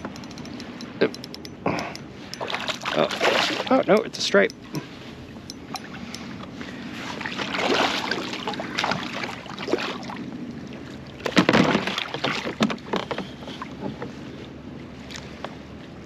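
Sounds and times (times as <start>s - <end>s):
steady water noise: 0.0s - 15.4s
fish splashing at the surface: 2.4s - 3.8s, 7.2s - 10.2s.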